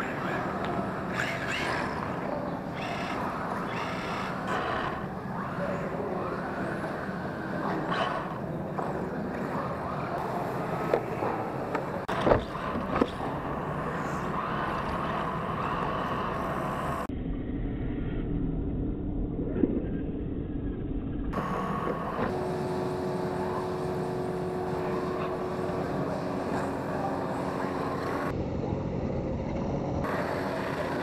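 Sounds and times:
small electric motors whining: 0.0s - 11.1s, 12.1s - 17.1s.

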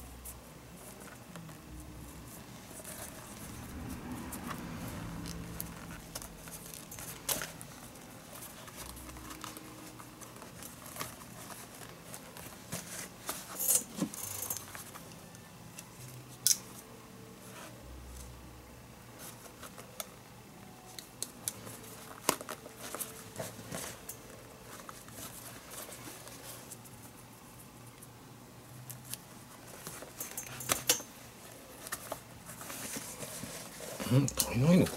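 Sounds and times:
leather scraping and rustling: 0.3s - 15.1s, 21.5s - 27.3s, 29.1s - 34.9s.

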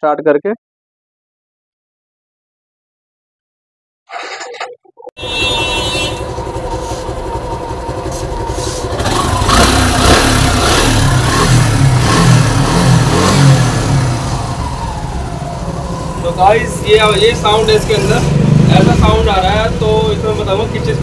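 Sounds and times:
engine ticking: 5.2s - 21.0s
motorcycle engine idling and revving: 5.2s - 21.0s.

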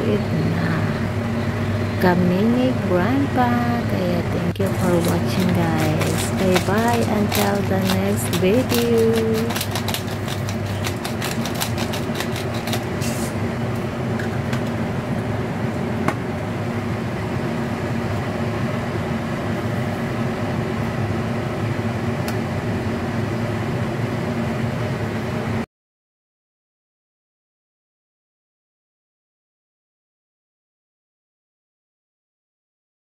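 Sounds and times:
machine motor hum: 0.0s - 18.0s.

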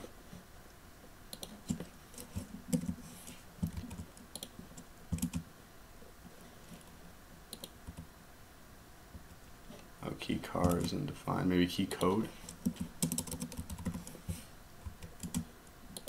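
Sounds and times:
computer keyboard typing: 1.3s - 3.0s, 3.6s - 5.4s, 10.6s - 11.0s, 12.0s - 14.2s, 15.0s - 16.0s.

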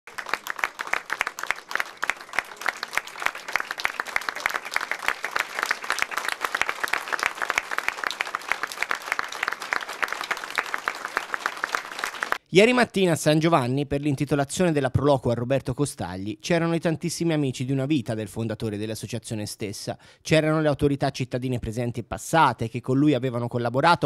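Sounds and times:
people applauding: 0.0s - 12.4s.

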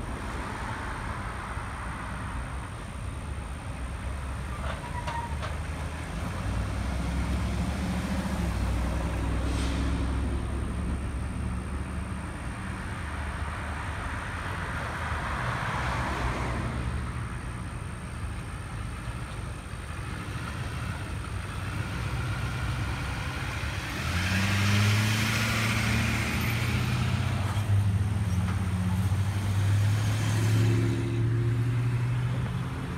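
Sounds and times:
truck engine hum: 0.0s - 32.9s
trucks driving slowly past: 0.0s - 32.9s
car passing by: 5.8s - 11.0s, 13.0s - 17.2s, 20.1s - 32.9s.

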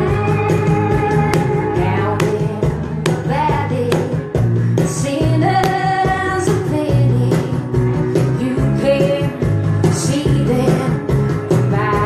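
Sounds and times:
cajon beat: 0.0s - 8.5s
electric bass: 0.0s - 12.0s
woman singing: 1.6s - 12.0s.

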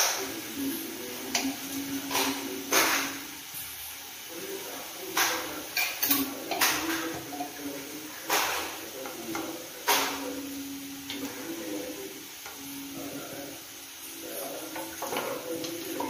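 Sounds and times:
spoons knocking on metal pan: 5.1s - 7.6s, 14.7s - 16.0s.

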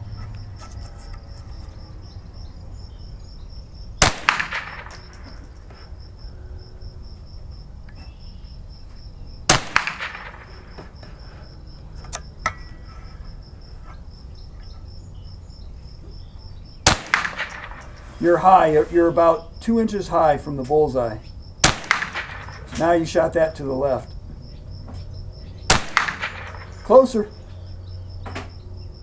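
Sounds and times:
insects chirping: 0.0s - 29.0s
rifle shots with echo: 4.0s - 5.4s, 9.5s - 10.7s, 16.8s - 18.4s, 21.6s - 23.1s, 25.7s - 27.2s.

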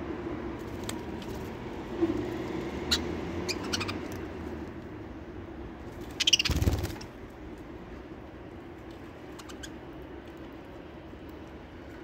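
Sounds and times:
budgerigars chirping: 2.9s - 4.1s, 6.2s - 6.7s, 9.4s - 9.8s
bird wings flapping: 6.0s - 7.2s.

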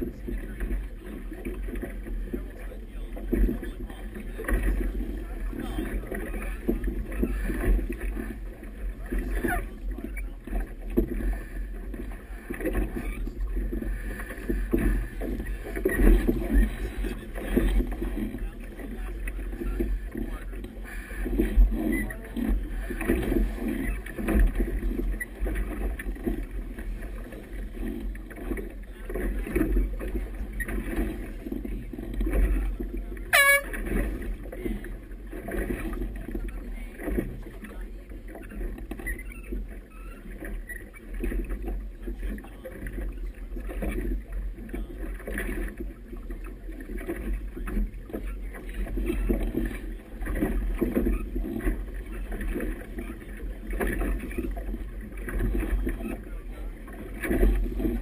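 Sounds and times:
water splashing against hull: 0.0s - 58.0s
wind rumbling on microphone: 0.0s - 58.0s
air horn blast: 33.3s - 33.8s.

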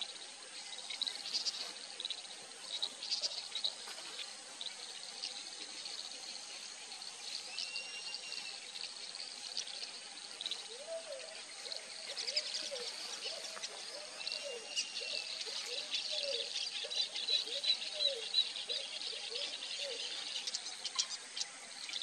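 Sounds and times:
insect and bird chirping: 0.0s - 22.0s.

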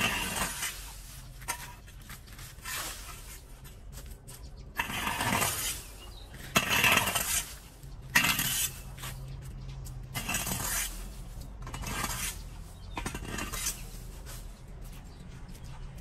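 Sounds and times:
metallic clatter of rake tines: 0.0s - 3.4s, 4.8s - 9.2s, 10.1s - 14.6s
rake scraping leaves on concrete: 0.0s - 16.0s.

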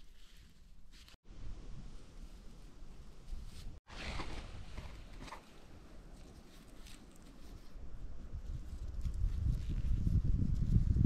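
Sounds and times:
dry grass rustling: 0.0s - 1.2s, 1.8s - 11.0s.

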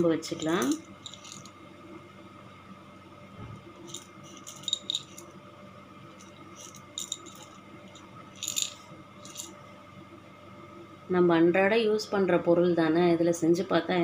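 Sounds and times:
cloves rattling and clicking: 0.0s - 1.5s, 3.8s - 5.3s, 6.2s - 9.6s.

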